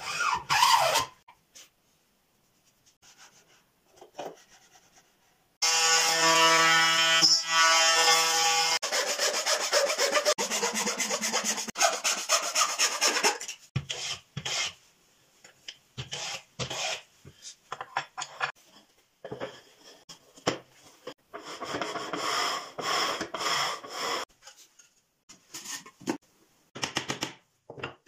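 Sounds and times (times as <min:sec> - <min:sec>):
frame saw cutting wood: 0:05.6 - 0:14.1.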